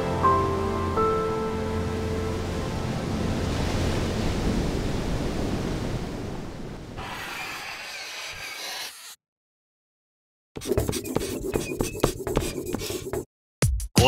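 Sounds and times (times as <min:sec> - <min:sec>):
wind: 0:00.0 - 0:08.5
sea surf: 0:00.1 - 0:07.4
marker pen scratching on whiteboard: 0:07.0 - 0:09.2, 0:10.6 - 0:13.3.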